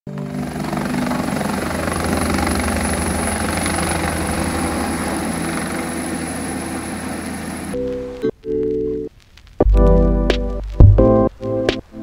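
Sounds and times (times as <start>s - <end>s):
helicopter rotor beating: 0.1s - 7.8s.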